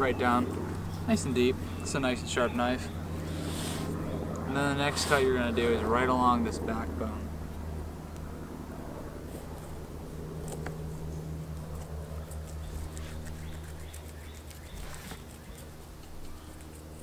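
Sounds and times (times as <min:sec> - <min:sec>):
steady low hum: 0:00.0 - 0:17.0
knife clicking and scraping bones: 0:11.5 - 0:17.0.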